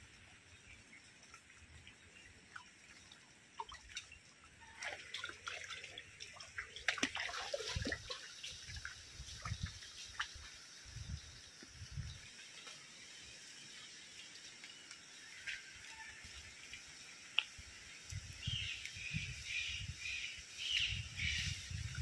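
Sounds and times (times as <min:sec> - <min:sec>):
footsteps splashing through water: 0:04.6 - 0:10.6
light rain hissing: 0:09.2 - 0:21.9.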